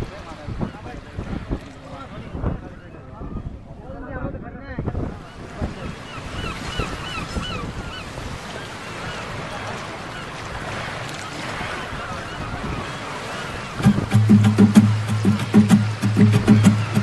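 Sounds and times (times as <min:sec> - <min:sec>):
wind buffeting microphone: 0:00.0 - 0:17.0
boat rushing on water: 0:05.1 - 0:17.0.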